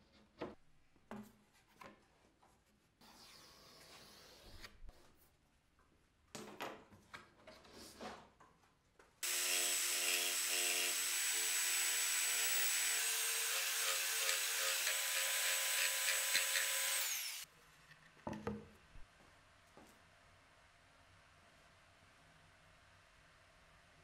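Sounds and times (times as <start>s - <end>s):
jigsaw cutting board: 9.2s - 17.4s.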